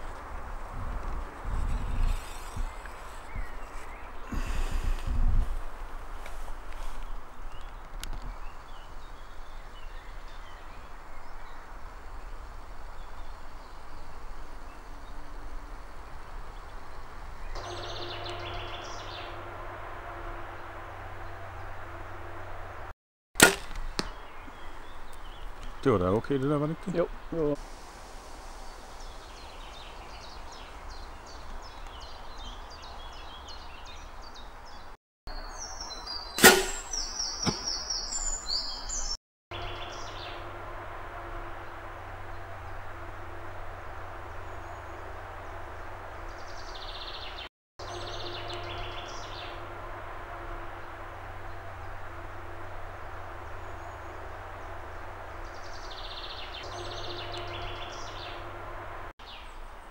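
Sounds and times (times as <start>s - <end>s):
birds chirping: 1.6s - 5.3s, 6.9s - 22.8s, 23.7s - 27.6s, 28.6s - 59.9s
bow shot crack: 23.4s - 24.2s, 36.4s - 37.8s.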